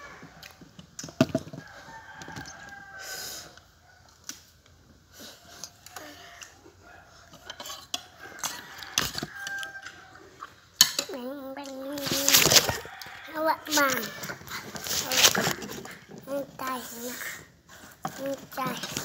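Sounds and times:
rooster crowing: 0:01.6 - 0:04.0, 0:08.2 - 0:10.3, 0:12.6 - 0:14.6
crunchy fruit being chewed: 0:05.3 - 0:10.6, 0:12.0 - 0:16.3.

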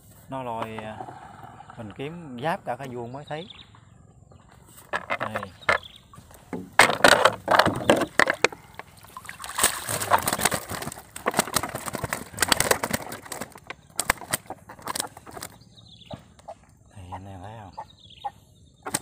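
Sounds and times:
water splashing and sloshing: 0:04.5 - 0:16.8.

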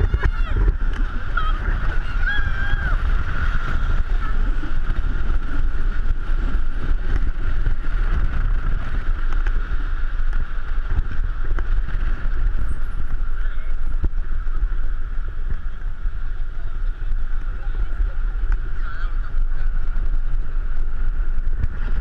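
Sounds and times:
vehicle engine and road noise: 0:00.0 - 0:22.0
wind buffeting microphone: 0:00.0 - 0:22.0.

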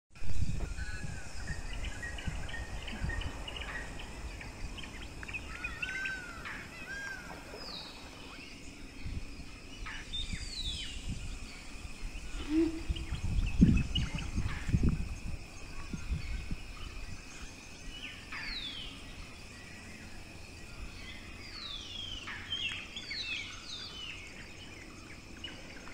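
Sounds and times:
birds chirping and whistling: 0:00.3 - 0:19.0.

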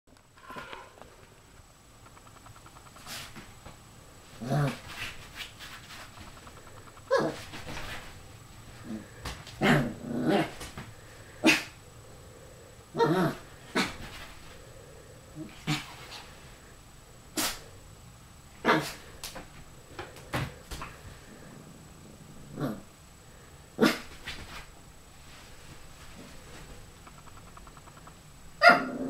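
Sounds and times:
puppy barking and growling: 0:06.4 - 0:07.8, 0:09.6 - 0:10.6, 0:12.9 - 0:14.1, 0:18.6 - 0:19.0, 0:28.0 - 0:29.0.

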